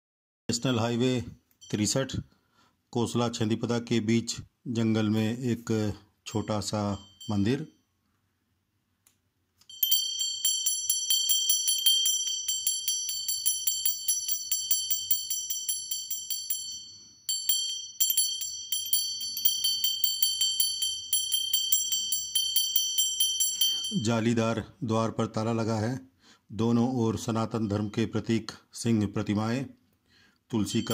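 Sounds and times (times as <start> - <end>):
small hand bell ringing rapidly: 6.4 - 7.7, 9.7 - 24.2, 30.6 - 30.9.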